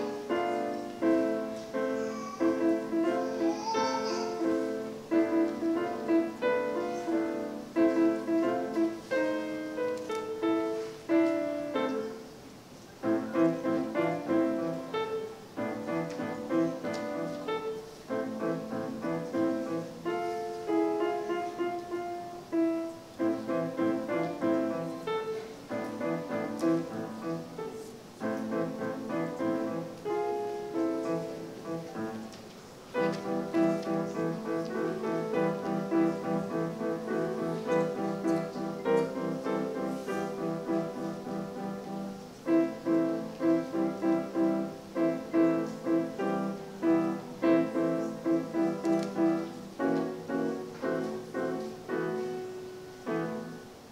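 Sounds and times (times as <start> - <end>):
solo grand piano: 0.0 - 53.9.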